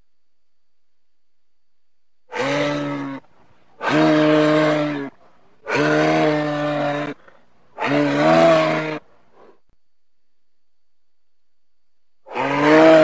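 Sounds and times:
moose calling: 0:02.3 - 0:09.6.

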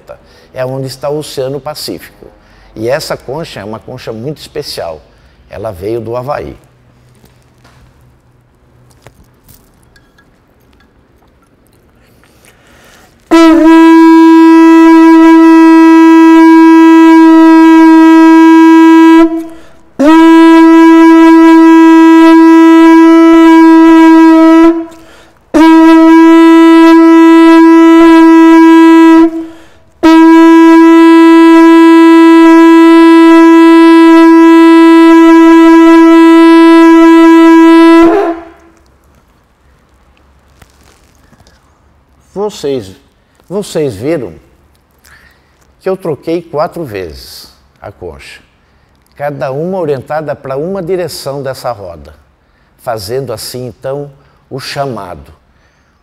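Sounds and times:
conch shell trumpet blasts: 0:13.3 - 0:38.8.

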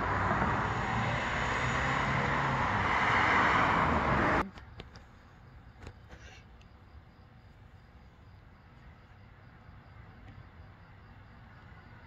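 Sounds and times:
running vehicle rushing noise: 0:00.0 - 0:04.5.

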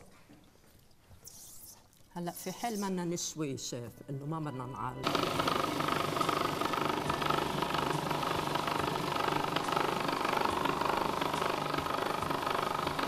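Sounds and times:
food processor motor running: 0:05.0 - 0:13.0.

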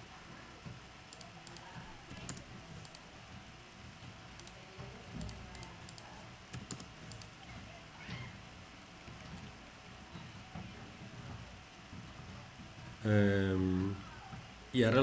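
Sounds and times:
computer keyboard clicks: 0:01.1 - 0:03.1, 0:04.4 - 0:04.6, 0:05.2 - 0:07.4.

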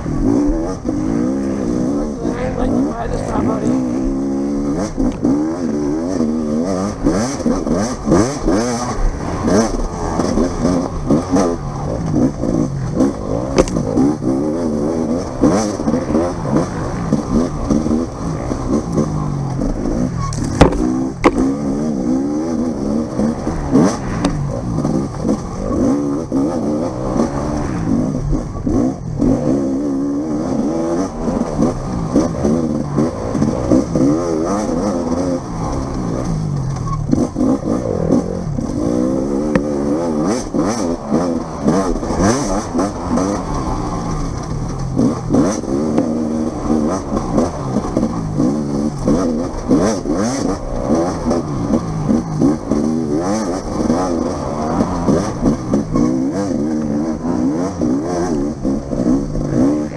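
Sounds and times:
dirt bike engine revving: 0:00.0 - 0:59.9
sharp knocks: 0:20.4 - 0:21.5.

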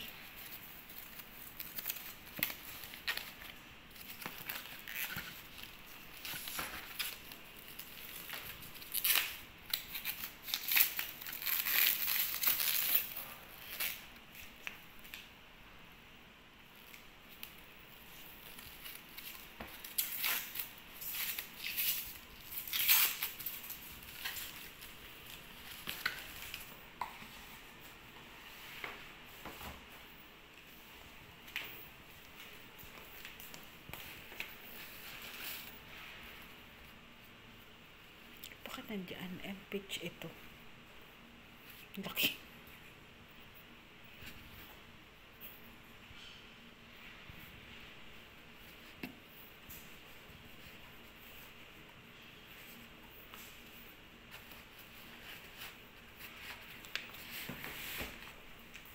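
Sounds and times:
foam packaging rustling and crinkling: 0:00.0 - 0:14.8, 0:16.8 - 0:26.8.

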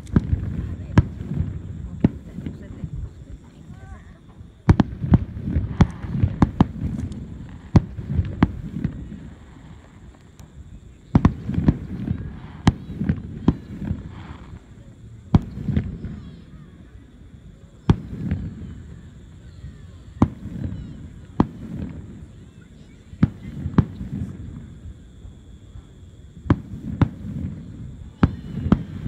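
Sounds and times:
firework shells bursting: 0:00.0 - 0:16.6, 0:26.4 - 0:29.0.

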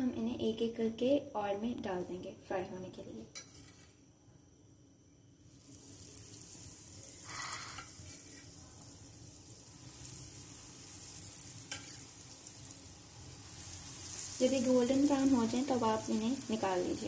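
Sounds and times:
onion rings sizzling in oil: 0:05.4 - 0:17.0.

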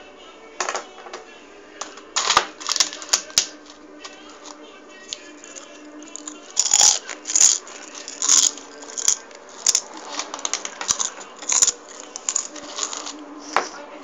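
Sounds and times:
plastic toys rattling in bowl: 0:02.2 - 0:03.4, 0:05.4 - 0:13.2.

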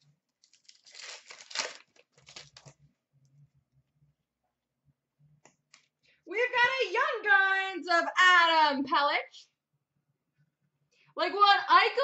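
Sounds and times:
foil wrapper tearing and crinkling: 0:00.4 - 0:02.8.

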